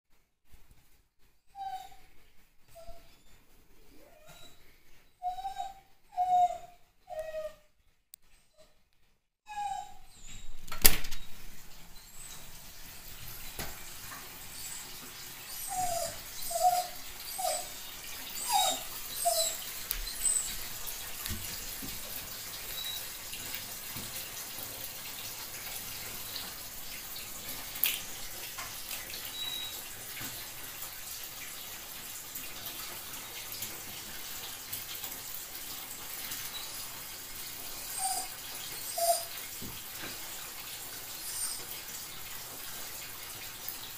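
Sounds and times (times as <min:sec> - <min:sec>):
dog whining: 0:01.5 - 0:02.1, 0:02.7 - 0:07.7, 0:09.5 - 0:10.6, 0:14.5 - 0:21.0, 0:29.3 - 0:29.8, 0:37.8 - 0:39.4, 0:41.2 - 0:41.7
bathtub tap running: 0:10.7 - 0:43.8.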